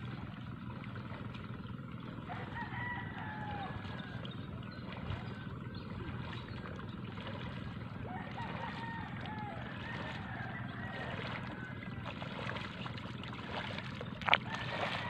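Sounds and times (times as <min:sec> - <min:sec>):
rooster crowing: 0:02.3 - 0:04.2, 0:08.1 - 0:11.9, 0:14.4 - 0:15.0.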